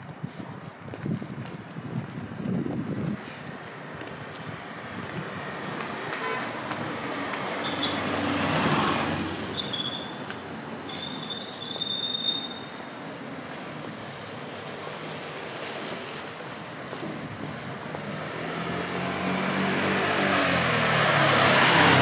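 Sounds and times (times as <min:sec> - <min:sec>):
vehicle passing close: 0:06.6 - 0:09.7, 0:17.7 - 0:22.0
brakes squealing: 0:07.4 - 0:16.3.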